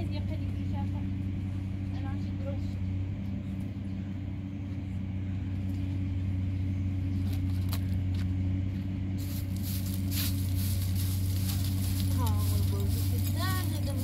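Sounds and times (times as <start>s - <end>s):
steady low hum: 0.0s - 14.0s
rustles: 7.0s - 14.0s.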